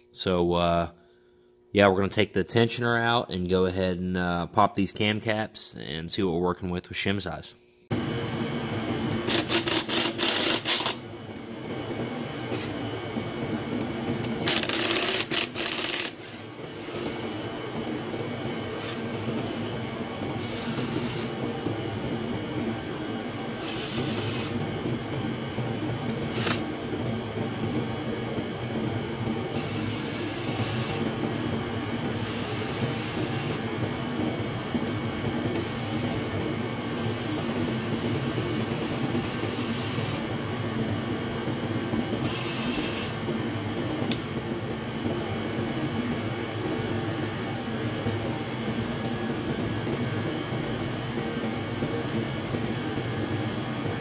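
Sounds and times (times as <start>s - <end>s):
ratchet clicking rapidly: 9.3s - 11.0s, 14.4s - 16.2s.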